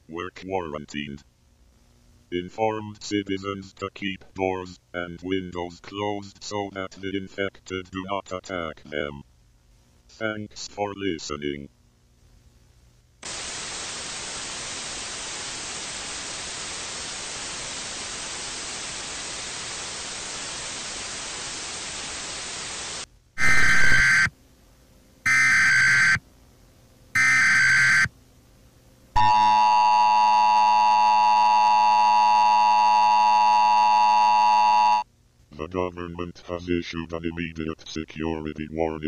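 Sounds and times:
television static hiss: 0:00.0 - 0:29.5
electronic data tone bursts: 0:23.4 - 0:24.3, 0:25.3 - 0:26.2, 0:27.2 - 0:28.1.

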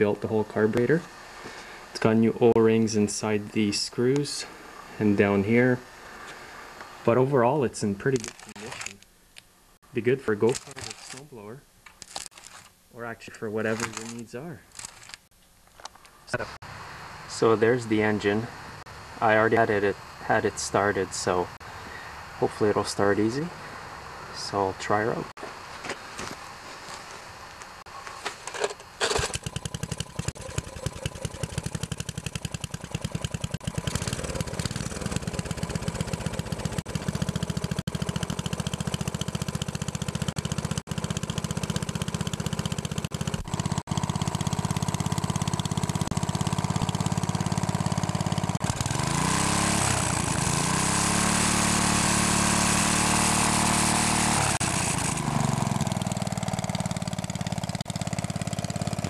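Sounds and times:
recoil starter pull: 0:28.3 - 0:59.0
small engine running and revving: 0:29.0 - 0:59.0.

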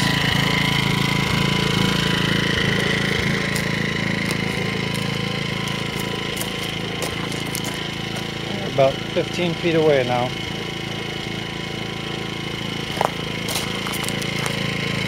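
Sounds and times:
generator engine hum with whine: 0:00.0 - 0:15.0
footsteps on gravel: 0:02.6 - 0:08.5, 0:12.8 - 0:14.8.

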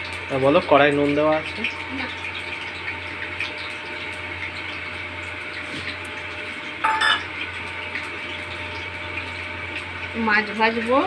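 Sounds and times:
metal dish clinking: 0:06.8 - 0:07.3.

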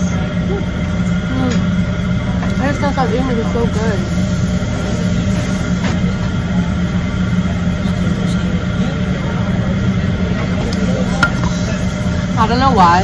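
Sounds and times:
faint voices: 0:00.0 - 0:13.0
machinery humming: 0:00.0 - 0:13.0.

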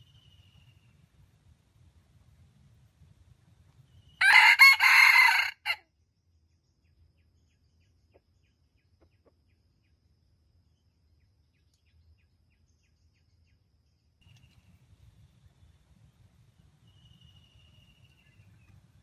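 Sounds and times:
rooster crowing: 0:04.2 - 0:05.8.

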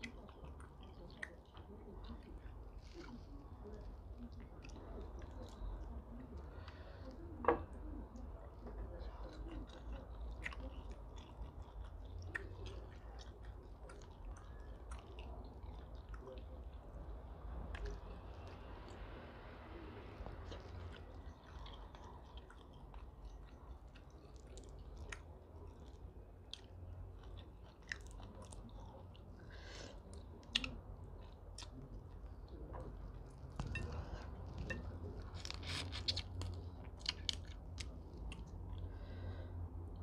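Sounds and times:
person chewing food: 0:00.0 - 0:40.0
crackly clicks of peeling prawns: 0:33.2 - 0:39.2.

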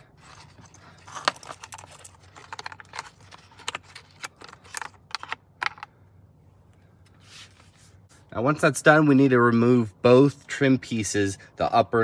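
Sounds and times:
plastic connectors clicking and rattling: 0:00.2 - 0:05.9.

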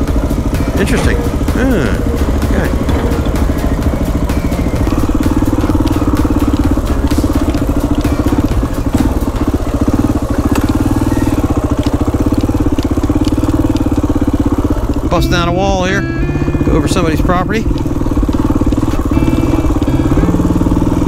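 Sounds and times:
knocks and rattles: 0:00.0 - 0:15.2
motorcycle engine running: 0:00.0 - 0:21.0.

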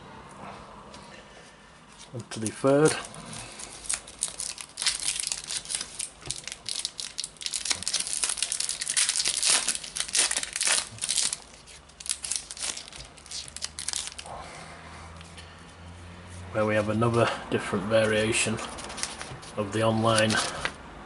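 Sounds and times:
foil wrapper tearing and crinkling: 0:02.3 - 0:14.3, 0:18.6 - 0:20.7.

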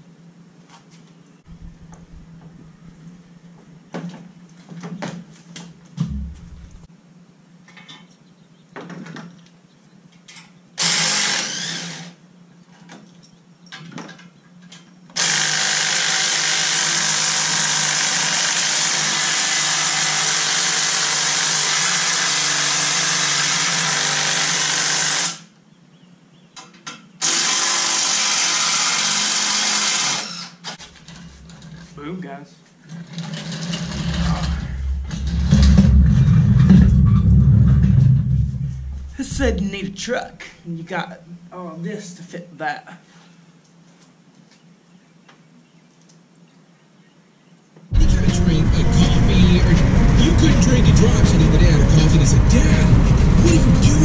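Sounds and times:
power drill running: 0:10.8 - 0:12.2, 0:15.2 - 0:25.5, 0:27.2 - 0:30.8.

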